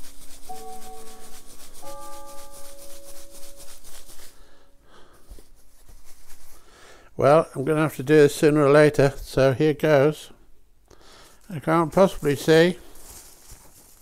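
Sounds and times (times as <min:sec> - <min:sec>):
paper slips shaken in hat: 0:00.0 - 0:06.8, 0:11.3 - 0:14.0.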